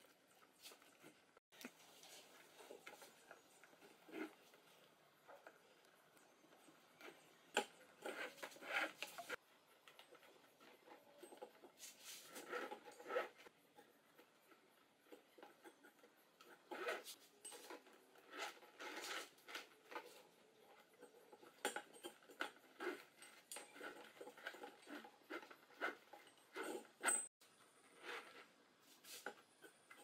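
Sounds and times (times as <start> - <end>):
rope scraping on rubber: 8.0 - 9.4, 11.7 - 13.5, 16.4 - 17.4, 18.2 - 20.2, 22.7 - 29.4.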